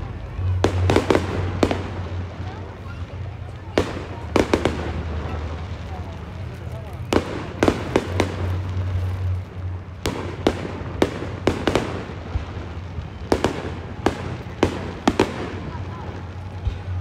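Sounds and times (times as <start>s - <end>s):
fireworks bangs: 0.0s - 17.0s.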